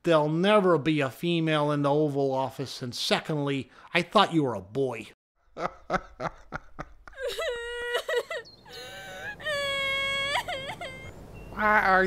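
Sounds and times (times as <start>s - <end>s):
woman crying and wailing: 7.1s - 11.2s.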